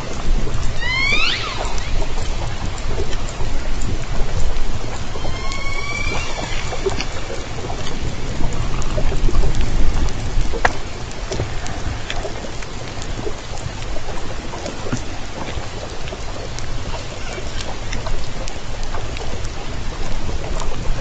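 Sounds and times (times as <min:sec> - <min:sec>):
killer whale clicks: 0:00.0 - 0:21.0
low underwater rumble: 0:00.0 - 0:21.0.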